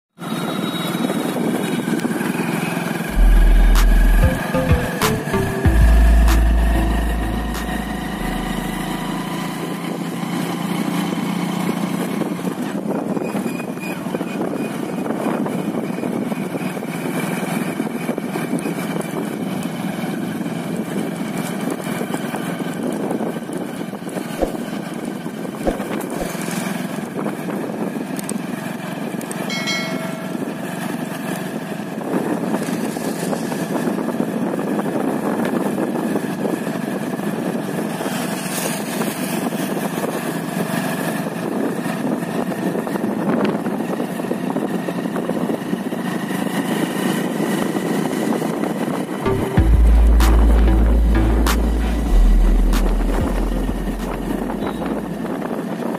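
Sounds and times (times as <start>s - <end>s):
motorcycle engine running: 0.8s - 13.1s, 15.5s - 34.7s, 43.8s - 55.9s
short beep: 3.1s - 9.4s, 29.5s - 30.6s, 49.2s - 55.2s
deep low sound: 3.1s - 9.6s, 49.3s - 55.4s
rushing noise: 3.1s - 9.8s, 49.2s - 55.6s.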